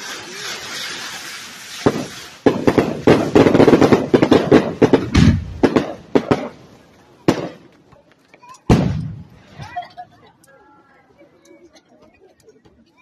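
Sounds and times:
fireworks bangs and crackles: 0.0 - 10.0.

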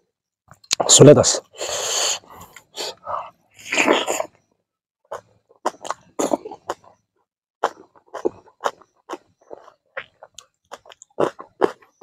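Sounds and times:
man's breathy huffs: 1.6 - 3.3
wet chewing and lip-smacking: 5.1 - 7.0, 7.6 - 12.0.

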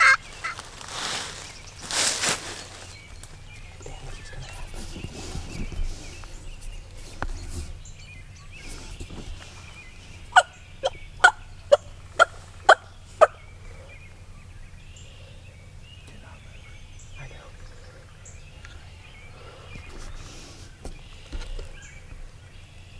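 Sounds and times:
turkey yelping: 0.0 - 0.6, 10.3 - 13.5
faint rustling in brush: 0.0 - 10.4, 18.6 - 21.9.

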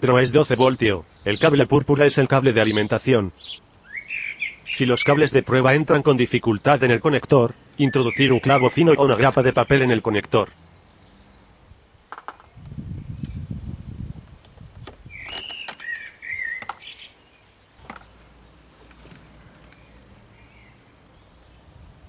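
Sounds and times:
high wavering chirp: 7.5 - 11.6
clicks and rustling: 14.4 - 16.9, 17.8 - 19.8.

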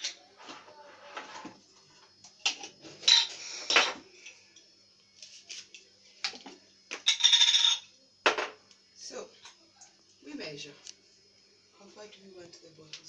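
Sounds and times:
glass jars and lids clinking: 3.0 - 4.0, 6.9 - 7.9.

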